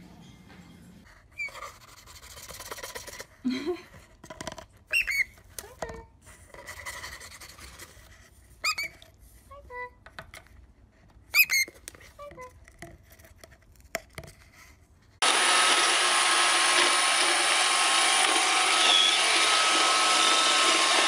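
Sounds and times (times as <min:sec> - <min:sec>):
small bird squeaking: 0:04.9 - 0:05.4, 0:08.6 - 0:09.0
robot vacuum running: 0:15.2 - 0:21.0.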